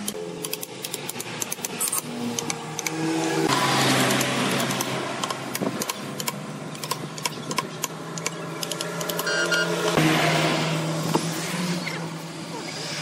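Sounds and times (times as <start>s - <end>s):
clicks and ticks: 0.0s - 3.0s, 4.0s - 10.0s.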